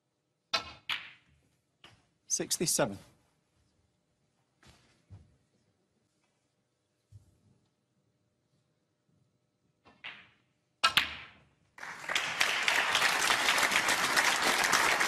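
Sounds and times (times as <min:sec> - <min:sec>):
audience applause: 0:11.8 - 0:15.0.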